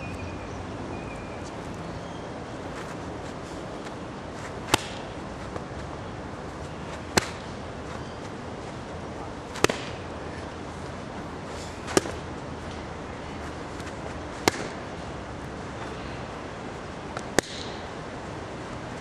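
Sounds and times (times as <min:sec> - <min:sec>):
strikes smacking a focus mitt: 0:04.6 - 0:05.1, 0:07.1 - 0:07.5, 0:09.5 - 0:10.0, 0:11.9 - 0:12.2, 0:14.4 - 0:14.8, 0:17.2 - 0:17.8.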